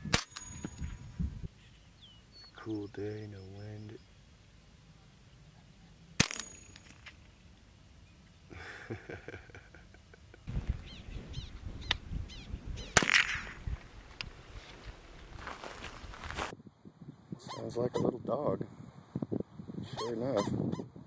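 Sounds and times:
rifle shots: 0:06.2 - 0:07.1, 0:12.9 - 0:13.6.

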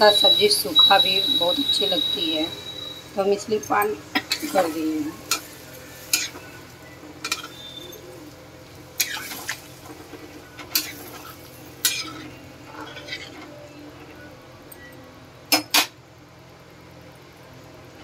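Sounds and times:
spatula scraping a pan: 0:09.0 - 0:10.0, 0:10.7 - 0:13.4.

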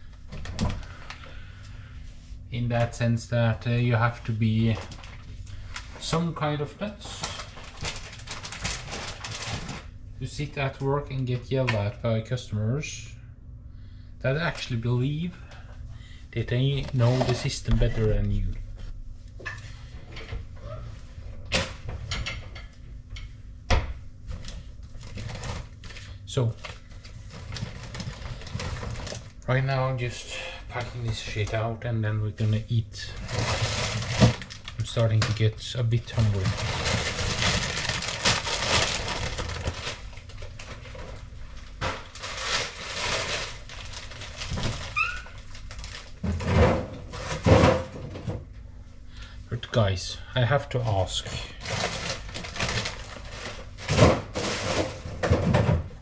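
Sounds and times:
plastic bags rustling: 0:03.8 - 0:10.4, 0:16.7 - 0:18.5, 0:24.4 - 0:31.8, 0:32.4 - 0:47.9, 0:51.4 - 0:56.0.

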